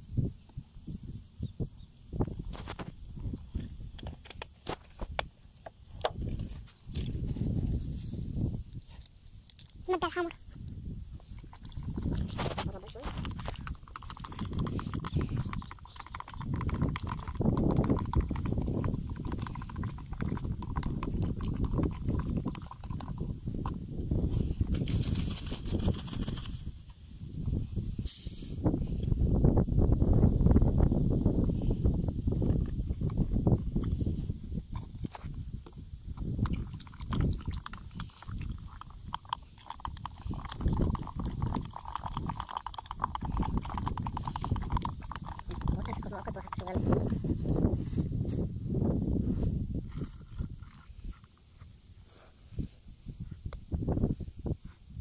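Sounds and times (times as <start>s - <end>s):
bait paste squelching: 11.2s - 23.8s, 36.4s - 46.8s
stick stirring in plastic jug: 11.2s - 23.8s, 36.2s - 47.2s, 49.8s - 51.8s.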